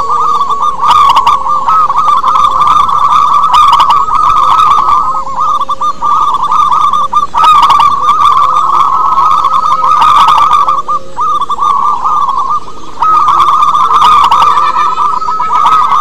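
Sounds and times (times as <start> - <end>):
doves cooing in trills: 0.0 - 16.0.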